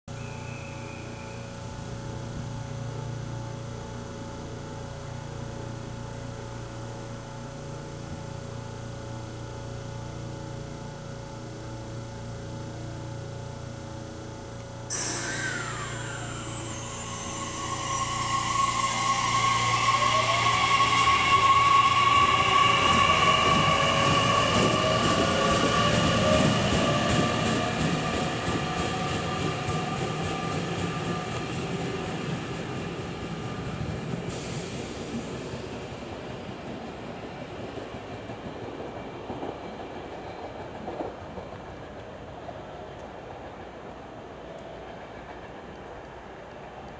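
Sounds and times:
electric train equipment hum: 0:00.1 - 0:46.9
air hiss: 0:14.9 - 0:26.7, 0:34.2 - 0:35.9
traction motors whining: 0:14.9 - 0:34.5.

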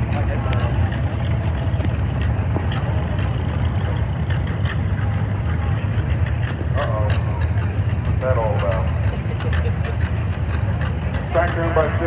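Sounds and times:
tractor engine rumbling: 0:00.0 - 0:12.0.

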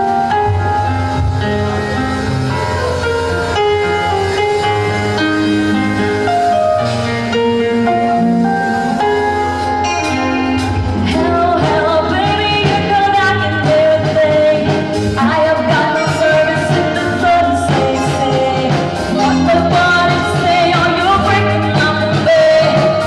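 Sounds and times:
held keyboard chords: 0:00.0 - 0:23.0
drum beat: 0:10.1 - 0:23.0
lead singer singing: 0:10.5 - 0:23.0.

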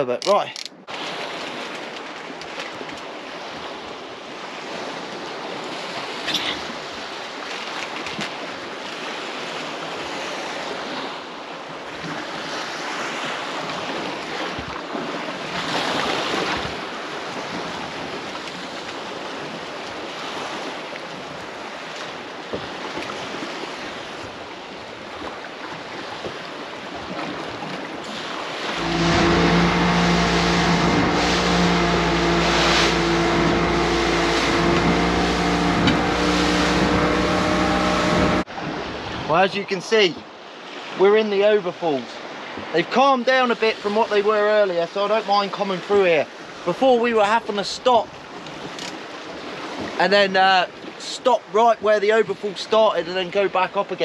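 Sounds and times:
wind: 0:00.0 - 0:54.0
sea water surging: 0:00.8 - 0:54.0
outboard motor running: 0:28.5 - 0:38.8.

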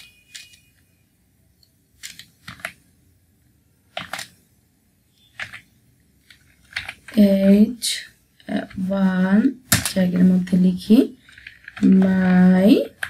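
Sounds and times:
keyboard keystrokes: 0:02.0 - 0:02.8, 0:03.9 - 0:04.4, 0:05.3 - 0:05.7.

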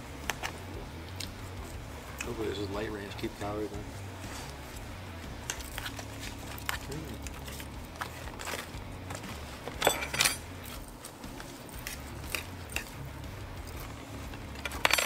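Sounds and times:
forks clinking on metal trays: 0:09.7 - 0:10.8, 0:14.5 - 0:15.0.

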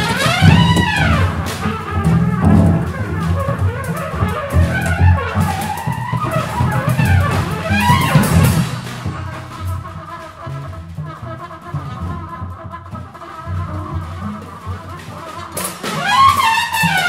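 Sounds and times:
percussion taps: 0:00.0 - 0:09.8
low double bass notes: 0:00.0 - 0:15.2
trumpet sliding bending notes: 0:00.0 - 0:17.0.

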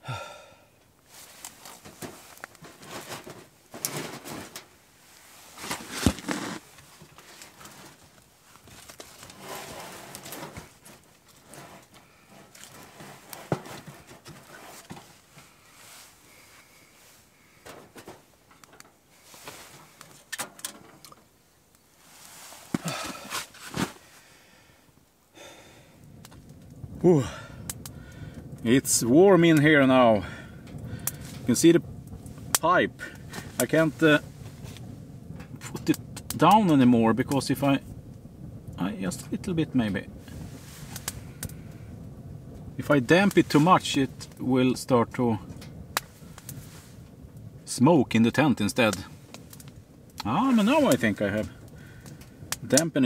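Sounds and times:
clothing rustling: 0:01.1 - 0:18.3, 0:19.1 - 0:20.3, 0:22.0 - 0:24.2.

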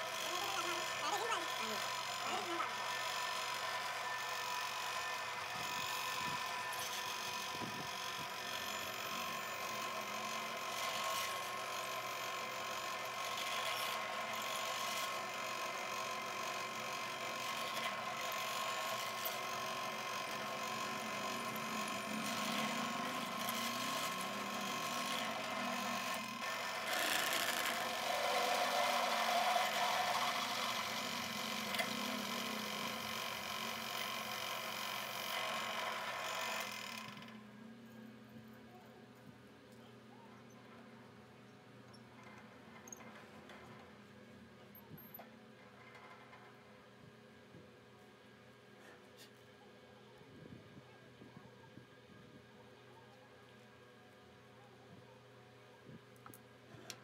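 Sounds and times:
drill bit grinding into metal: 0:00.0 - 0:37.4
pillar drill whining: 0:00.0 - 0:37.4.

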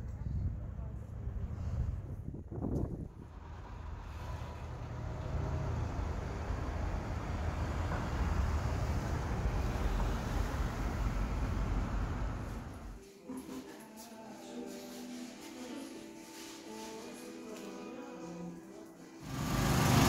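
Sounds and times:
passing vehicles rumble: 0:00.1 - 0:13.0, 0:19.2 - 0:20.0.

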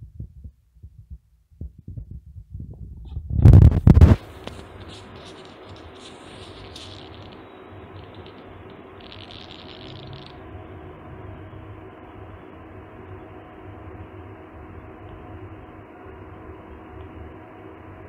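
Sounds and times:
faint background hum: 0:00.0 - 0:18.0
soft hiss: 0:04.0 - 0:10.9.

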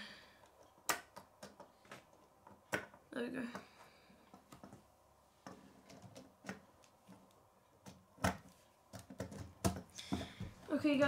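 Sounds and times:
plastic pieces clicking and knocking: 0:00.4 - 0:03.6, 0:05.5 - 0:10.3.

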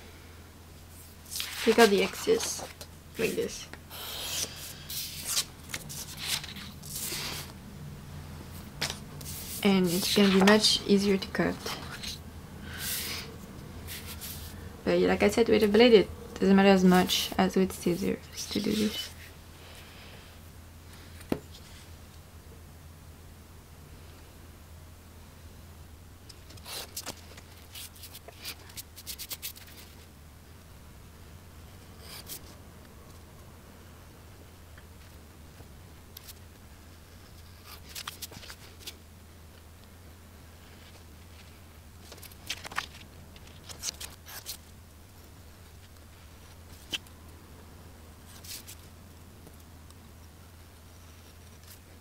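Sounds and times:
low steady hum: 0:00.0 - 0:52.0
paper card rustling: 0:01.0 - 0:03.5, 0:04.2 - 0:07.5, 0:08.8 - 0:10.8, 0:11.6 - 0:12.2, 0:18.4 - 0:19.3, 0:26.4 - 0:30.0, 0:37.6 - 0:39.0, 0:42.0 - 0:44.7
card being handled: 0:04.3 - 0:07.5.

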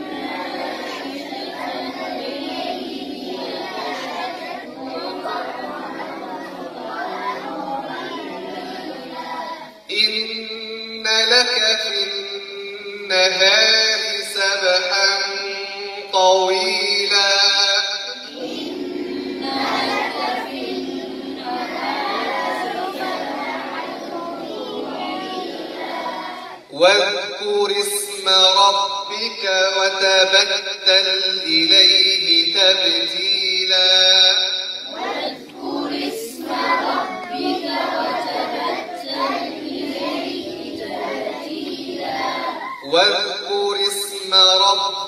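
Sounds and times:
group chanting in unison: 0:00.0 - 0:45.0
person reciting: 0:00.0 - 0:45.0.

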